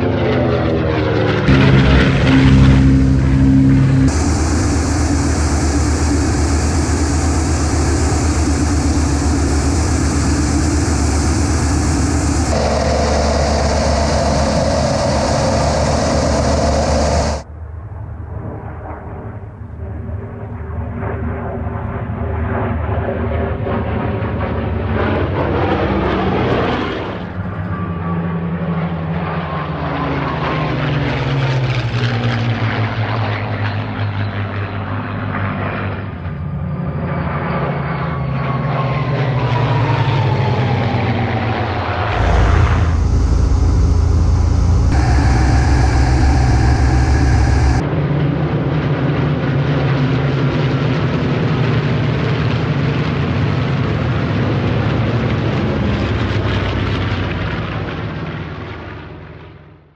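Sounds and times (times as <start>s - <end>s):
propeller planes flying past: 0.0s - 47.8s
propeller plane engine in cockpit: 0.0s - 59.7s.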